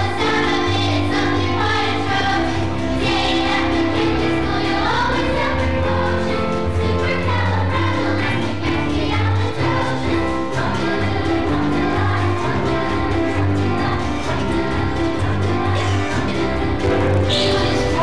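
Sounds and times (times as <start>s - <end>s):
chorus singing: 0.0s - 18.0s
instrumental accompaniment: 0.0s - 18.0s.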